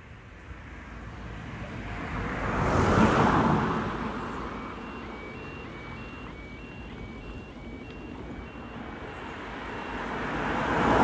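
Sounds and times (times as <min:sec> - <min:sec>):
car driving past: 0:01.8 - 0:07.8
two-tone crossing alarm: 0:03.6 - 0:11.0.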